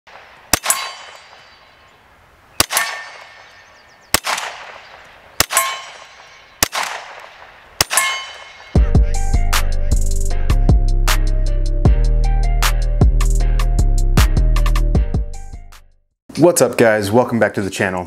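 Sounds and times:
gunshots with echo: 0:00.1 - 0:01.8, 0:02.6 - 0:08.9.

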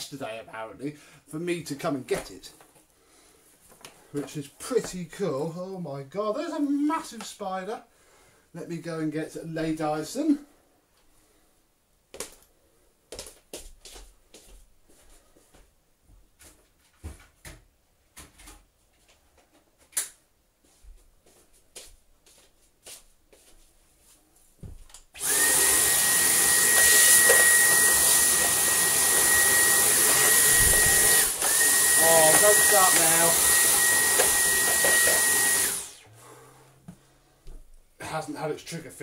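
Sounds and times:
vacuum cleaner whining: 0:25.2 - 0:37.0.

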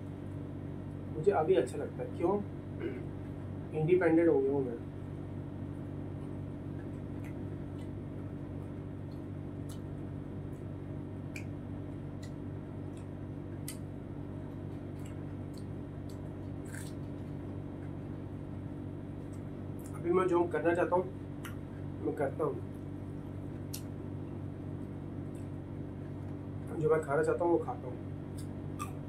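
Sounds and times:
low room hum: 0:00.0 - 0:29.0
wet chewing mouth clicks: 0:14.6 - 0:18.0.

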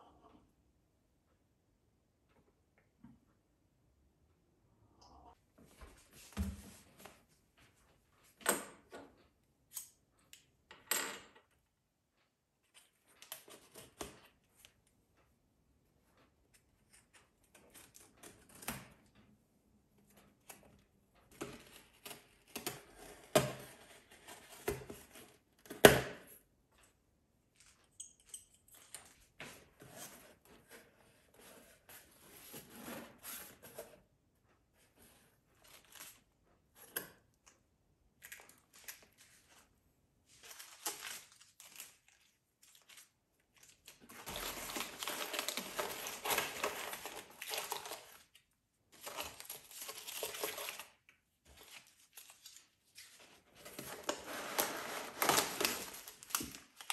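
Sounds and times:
packing paper crinkling: 0:40.3 - 0:48.4, 0:49.0 - 0:56.9
sachets and cardboard flaps rustling: 0:40.3 - 0:56.9.

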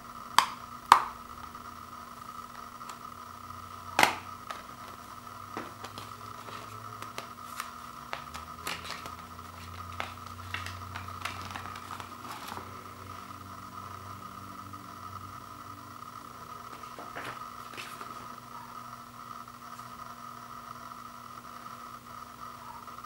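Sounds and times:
paper rustling: 0:04.0 - 0:12.9, 0:16.7 - 0:18.3.

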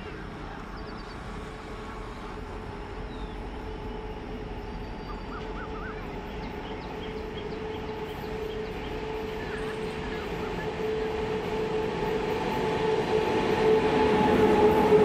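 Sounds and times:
electric locomotive rumble: 0:00.0 - 0:15.0
birds chirping: 0:04.6 - 0:10.8.

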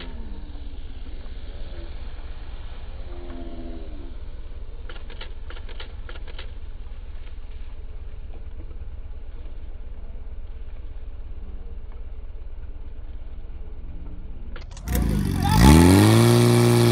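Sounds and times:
pump engine: 0:14.7 - 0:16.9.

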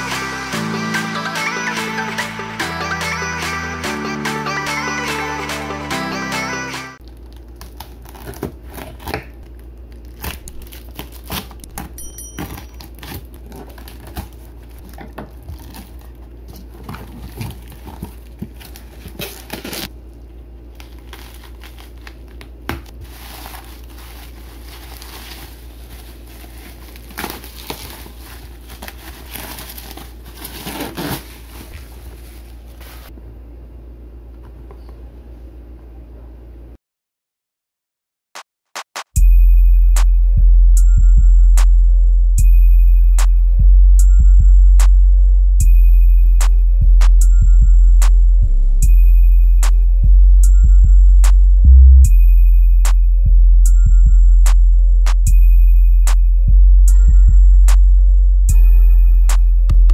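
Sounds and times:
bubble wrap crinkling and tearing: 0:07.0 - 0:19.9, 0:20.6 - 0:33.1
steady low hum: 0:39.2 - 0:59.9.

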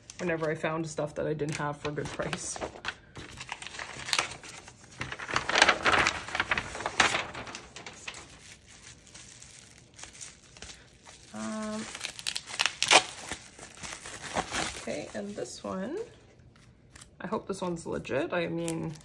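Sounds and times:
packaging crinkling: 0:01.5 - 0:15.5.

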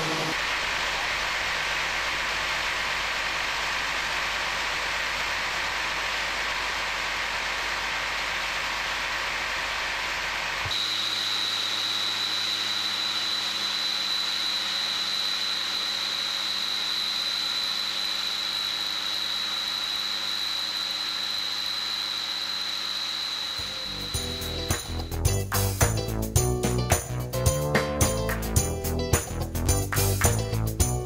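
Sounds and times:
high-pitched whine: 0:00.0 - 0:27.3.

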